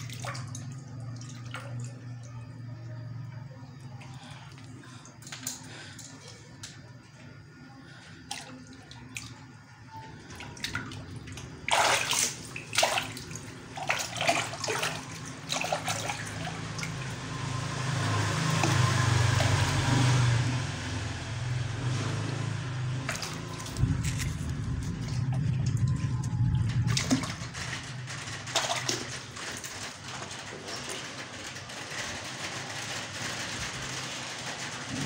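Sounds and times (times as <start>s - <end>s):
water splashing: 0.0s - 2.3s, 8.2s - 30.9s
water dripping and trickling: 0.0s - 35.0s
water sloshing: 8.1s - 31.5s.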